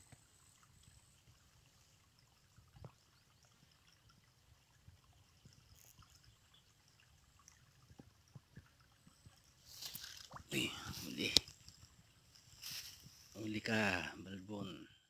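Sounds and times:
soft ticks: 5.4 - 9.4.

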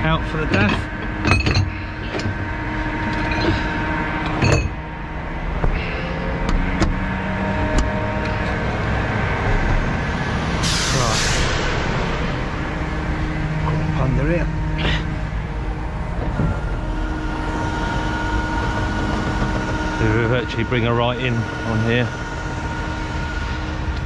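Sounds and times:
truck diesel engine running: 0.0 - 24.0
air hiss burst: 10.6 - 11.8.

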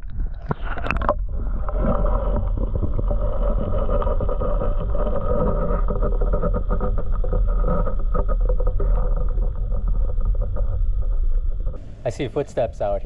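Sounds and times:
underwater rush of moving water: 0.0 - 12.1
small crackles: 0.0 - 13.0.

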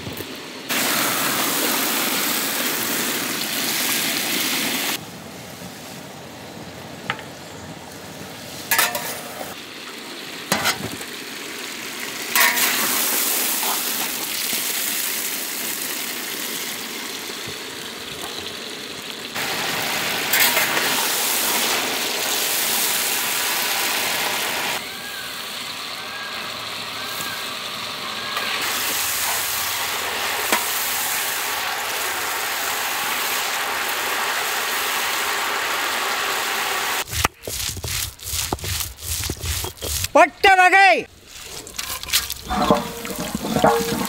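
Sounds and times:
eggplants sizzling in hot oil: 0.0 - 5.0, 8.7 - 40.2, 41.2 - 44.0.

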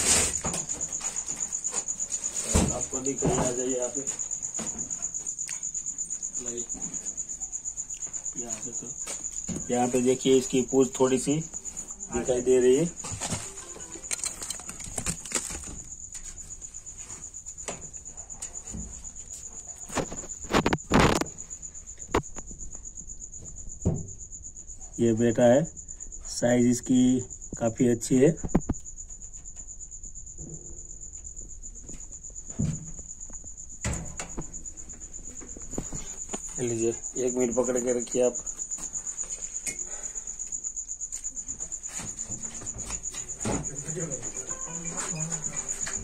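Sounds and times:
cricket chirping: 0.0 - 46.0
things being handled: 13.0 - 17.3.

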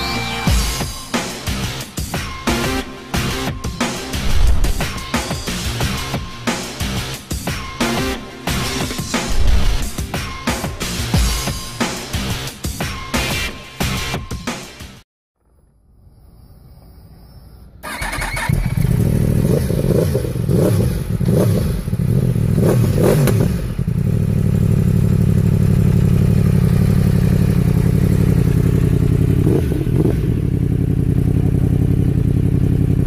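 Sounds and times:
motorcycle engine revving and idling: 17.8 - 33.0.

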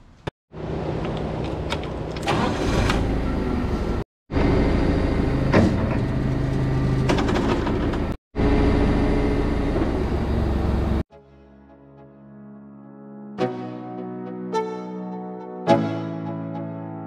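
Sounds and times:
forklift engine running: 0.6 - 11.0
clunk: 5.5 - 6.1, 7.0 - 8.2.

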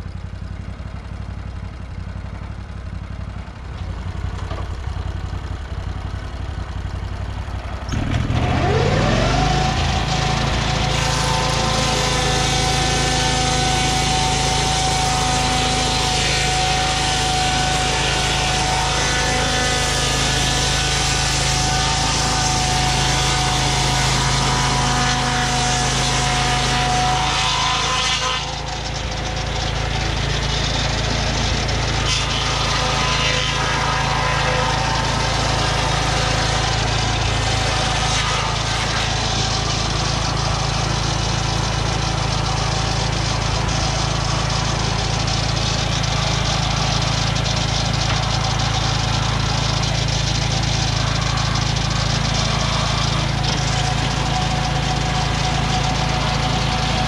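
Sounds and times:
gas engine running: 0.0 - 57.0
saw blade whining through log: 0.0 - 57.0.

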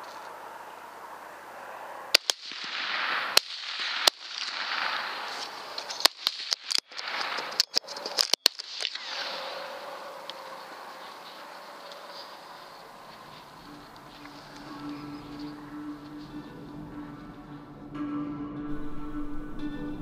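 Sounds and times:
rifle shots: 2.1 - 13.0.

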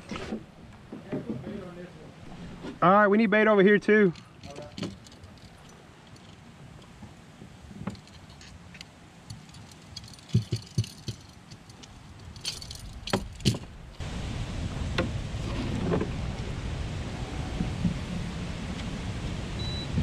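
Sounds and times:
fishing tackle clinking and rattling: 4.1 - 6.4, 7.8 - 13.6
low rushing noise: 12.6 - 20.0.

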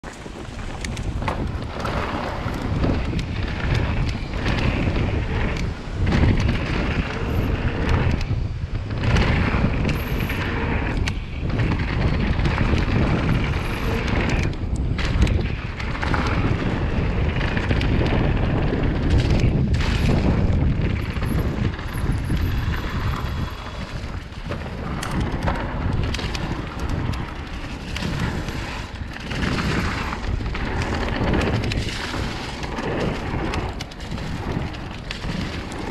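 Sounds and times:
bike knocks and rattles: 0.0 - 35.9
bike tyres on dirt: 0.0 - 35.9
wind buffeting microphone: 0.0 - 35.9.

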